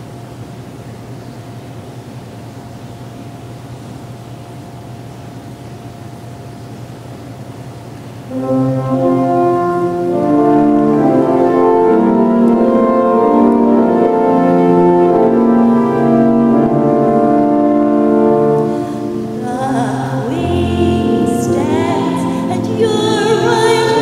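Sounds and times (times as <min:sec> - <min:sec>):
church organ chords: 0:08.3 - 0:24.0.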